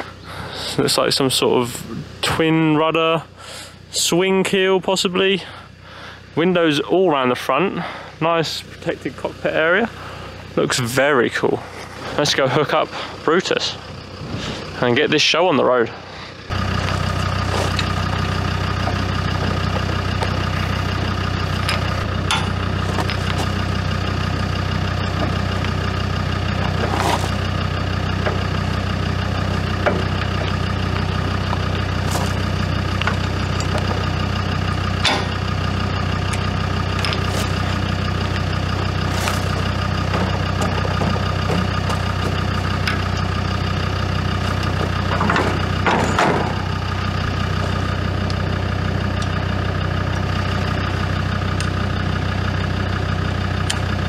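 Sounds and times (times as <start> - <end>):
car engine idling: 0.0 - 54.0
metal clanks of trailer hitch: 16.6 - 48.4.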